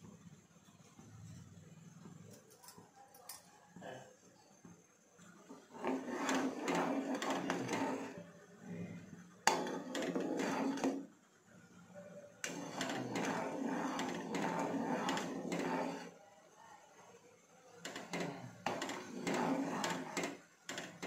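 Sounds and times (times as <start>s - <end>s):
ladle scraping a pot: 5.5s - 8.3s, 9.5s - 11.1s, 12.4s - 16.2s, 17.9s - 21.0s
milk frothing: 5.5s - 8.8s, 9.5s - 11.2s, 12.4s - 16.2s, 17.9s - 21.0s.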